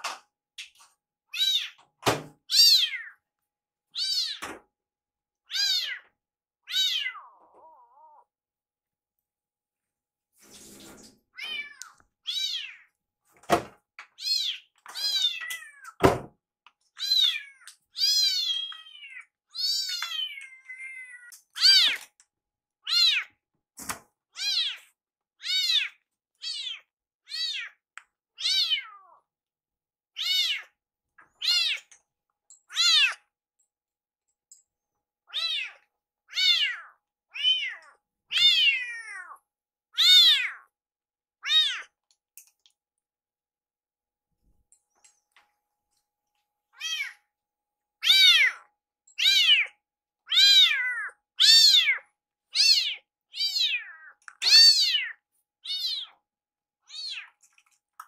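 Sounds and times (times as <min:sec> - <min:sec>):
kittens meowing: 0:02.5 - 0:03.2, 0:05.5 - 0:08.3, 0:11.4 - 0:12.9, 0:17.0 - 0:22.1, 0:22.9 - 0:23.4, 0:24.4 - 0:27.8, 0:28.4 - 0:29.2, 0:30.2 - 0:31.9, 0:32.7 - 0:33.2, 0:35.3 - 0:39.4, 0:40.0 - 0:40.7, 0:41.4 - 0:41.9, 0:46.8 - 0:47.2, 0:48.0 - 0:56.2, 0:56.9 - 0:57.3.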